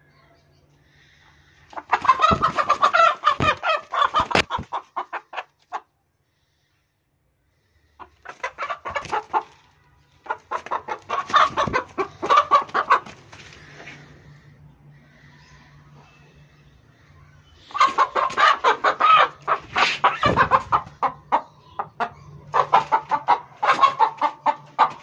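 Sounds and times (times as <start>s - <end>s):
chicken clucking: 1.7s - 5.9s, 8.0s - 14.2s, 17.6s - 25.0s.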